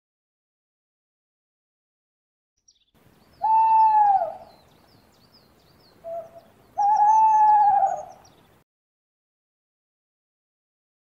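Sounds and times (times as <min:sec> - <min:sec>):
faint high bird chirping: 0:02.6 - 0:08.6
owl hooting: 0:03.4 - 0:04.6, 0:06.0 - 0:08.3.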